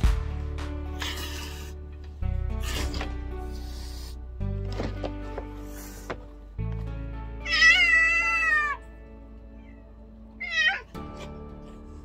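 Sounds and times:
background music: 0.0 - 12.0
cat meowing: 7.4 - 8.8, 10.4 - 11.0.

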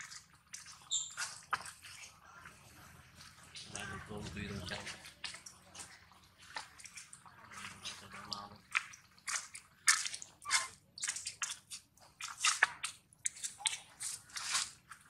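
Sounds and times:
monkey chewing food: 0.0 - 15.0.

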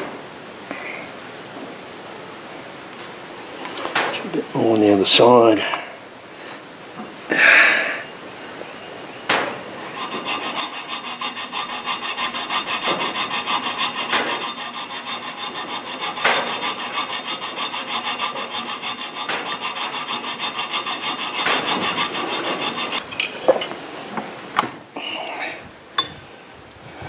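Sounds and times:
file rasping on metal: 9.8 - 23.0
high metallic ring: 9.8 - 23.5.

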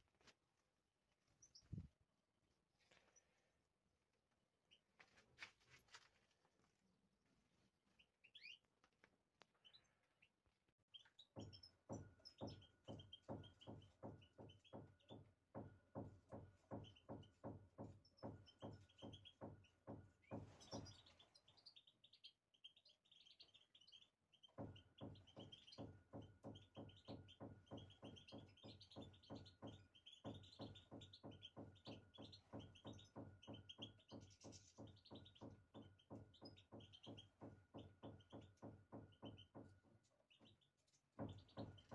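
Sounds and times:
finches chirping: 8.0 - 8.7.

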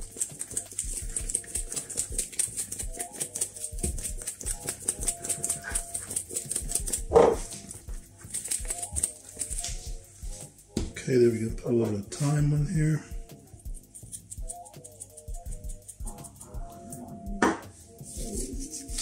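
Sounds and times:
shaker jar rattling: 0.0 - 10.5, 12.8 - 17.1.

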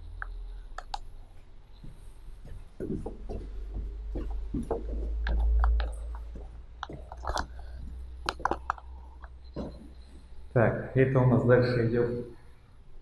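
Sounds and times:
footsteps on tiled stairs: 1.4 - 10.3
camera handling rumble: 5.2 - 8.9.

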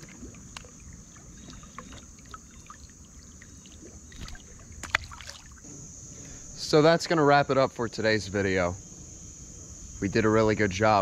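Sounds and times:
low water: 0.0 - 7.2.

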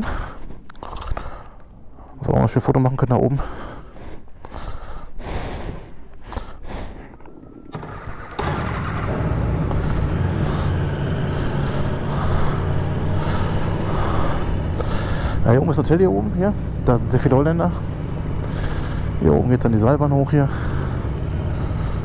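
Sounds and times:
motorcycle engine rumble: 7.2 - 22.0.

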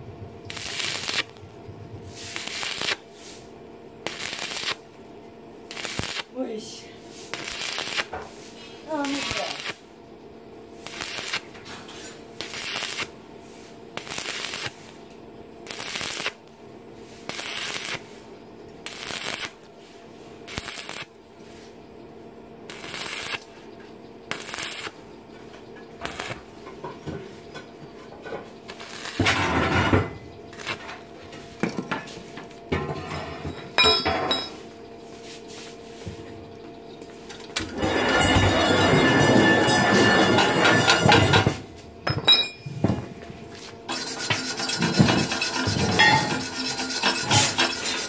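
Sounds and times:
steady hum: 0.0 - 48.0
welding arc crackling: 0.4 - 3.1, 4.0 - 5.0, 5.6 - 6.4, 7.2 - 8.2, 8.8 - 9.9, 10.7 - 11.6, 12.3 - 13.2, 13.9 - 15.0, 15.6 - 16.6, 17.2 - 18.2, 18.8 - 19.7, 20.5 - 21.1, 22.6 - 23.6, 24.3 - 25.0, 26.0 - 26.6, 28.6 - 29.4, 30.5 - 30.9, 37.5 - 41.5, 43.9 - 48.0.

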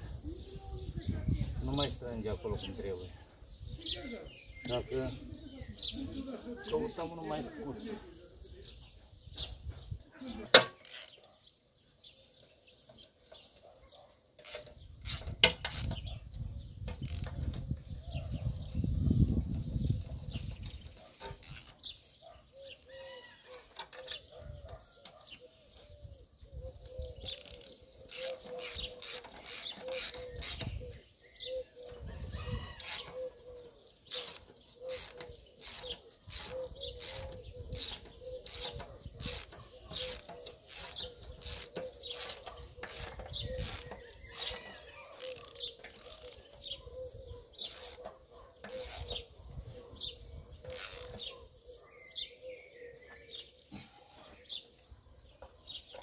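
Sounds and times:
hand tools clicking on metal: 34.1 - 46.5.

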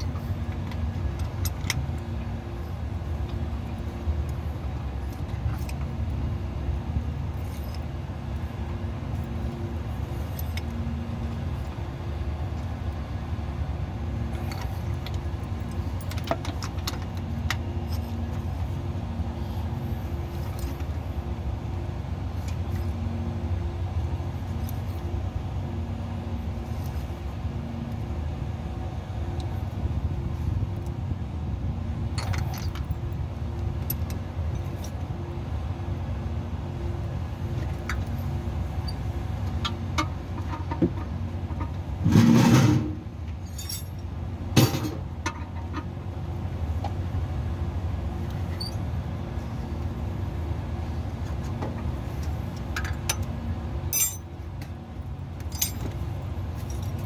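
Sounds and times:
low engine hum: 0.0 - 57.0
metal clatter: 40.4 - 44.0, 53.9 - 54.3, 55.4 - 56.0
metallic tool clinks and knocks: 43.4 - 44.0, 53.9 - 54.3, 55.5 - 56.0.

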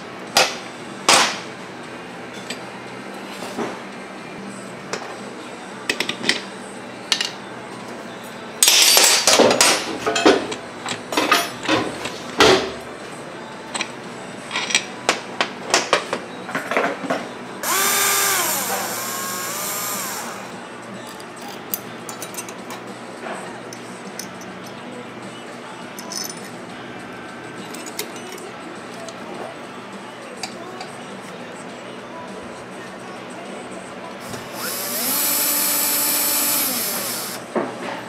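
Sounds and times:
cordless drill driving screws: 17.6 - 20.5, 34.3 - 37.4.

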